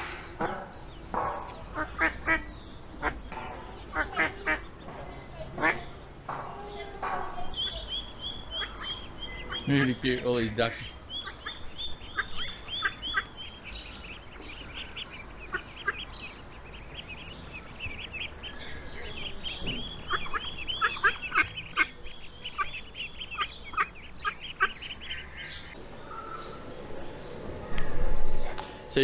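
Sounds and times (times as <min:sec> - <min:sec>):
ducklings peeping: 0:00.0 - 0:27.4.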